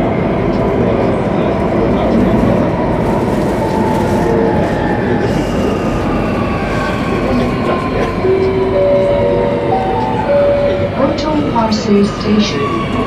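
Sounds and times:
train rumbling on rails: 0.0s - 13.0s.

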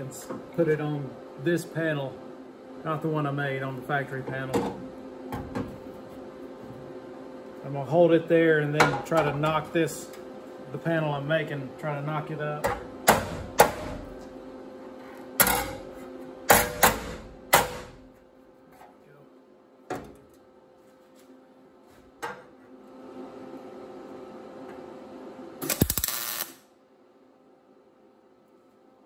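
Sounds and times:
hammer striking sheet steel: 16.5s - 18.0s
welder crackling: 25.6s - 26.6s.

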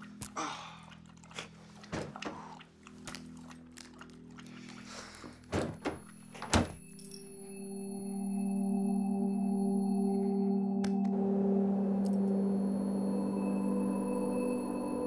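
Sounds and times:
droning music tone: 0.0s - 15.0s
items clinking in refrigerator: 5.2s - 7.1s
refrigerator door shutting: 5.5s - 6.8s.

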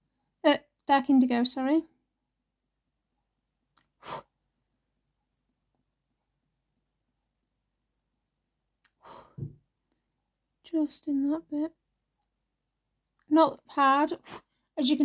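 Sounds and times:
pencil scratching on paper: 2.1s - 8.6s.

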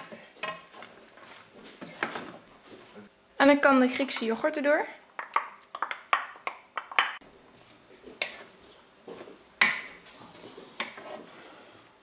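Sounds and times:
soft mixing noise: 0.0s - 12.0s
spoon knocking and scraping bowl: 5.2s - 7.2s.

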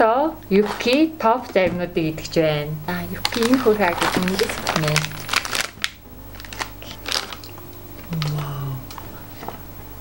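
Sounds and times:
plastic wrapper crinkling and tearing: 3.0s - 8.4s
person humming mmm: 6.8s - 9.8s.

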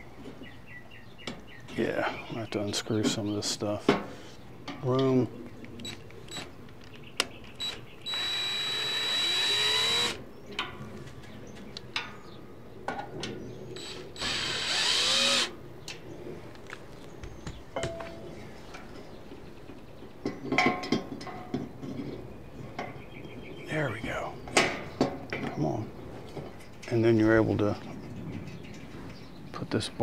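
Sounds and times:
cordless drill running: 7.6s - 10.2s, 13.8s - 15.5s.

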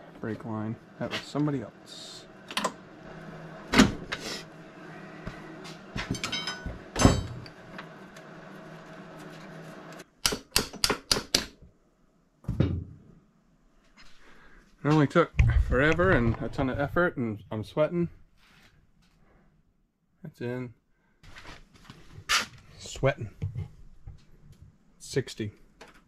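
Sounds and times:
tools clanking on metal: 6.0s - 7.5s.

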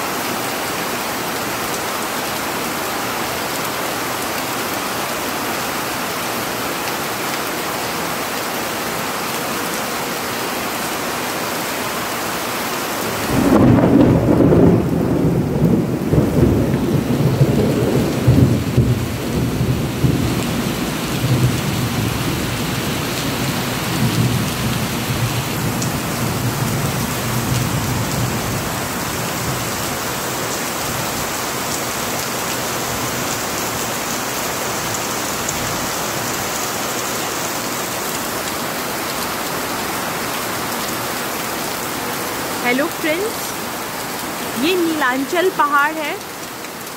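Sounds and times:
heavy rain falling: 0.0s - 46.9s
thunder rumbling: 13.2s - 20.6s.

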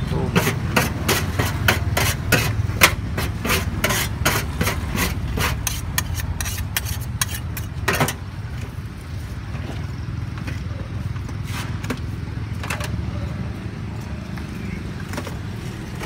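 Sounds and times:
metal spatula scraping griddle: 0.0s - 8.2s.

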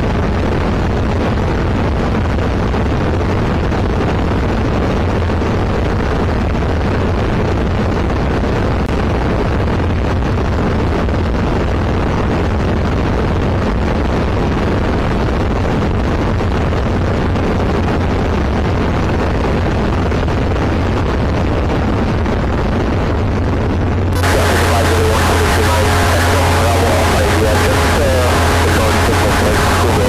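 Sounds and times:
light aircraft engine droning: 24.2s - 30.0s.

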